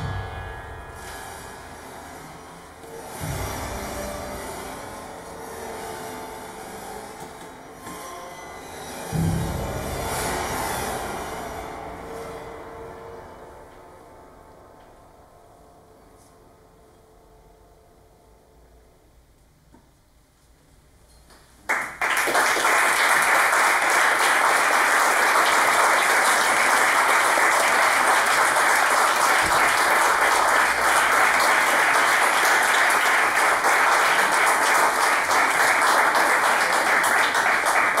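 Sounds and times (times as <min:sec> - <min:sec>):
audience applause: 0:21.7 - 0:38.0.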